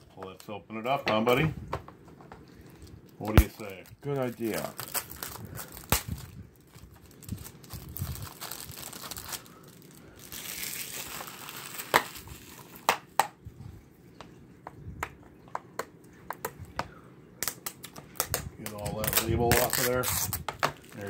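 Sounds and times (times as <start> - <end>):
plastic shrink-wrap crinkling: 2.5 - 13.1, 17.4 - 21.0.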